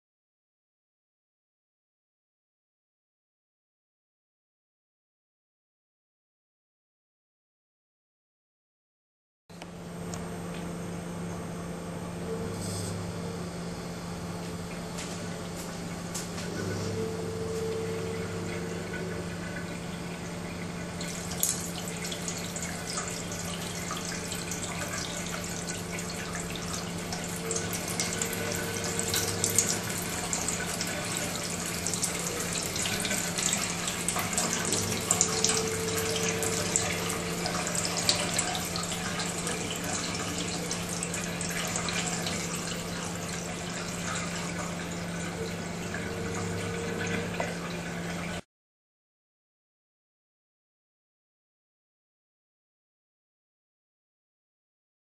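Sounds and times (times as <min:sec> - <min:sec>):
tap water splashing into sink: 0:21.0 - 0:42.6.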